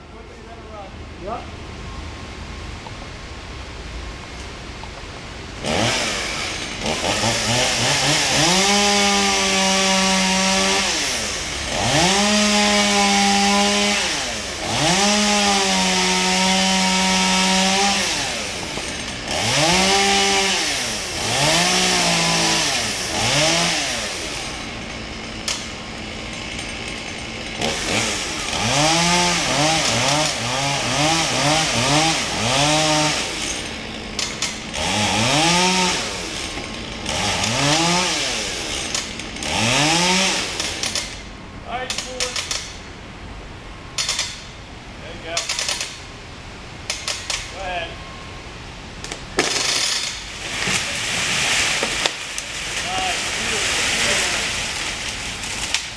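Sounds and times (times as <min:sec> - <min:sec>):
chainsaw revving: 0:05.6 - 0:41.3, 0:45.3 - 0:46.0, 0:49.4 - 0:55.9.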